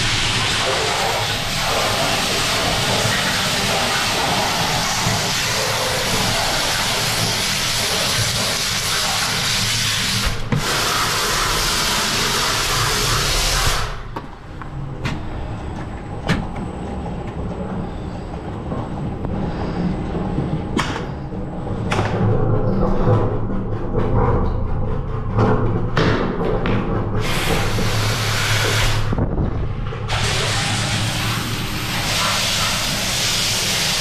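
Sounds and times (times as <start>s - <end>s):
high-pressure water jet spraying: 0.0s - 14.0s, 27.2s - 29.1s, 30.1s - 34.0s
low hum: 13.9s - 32.0s.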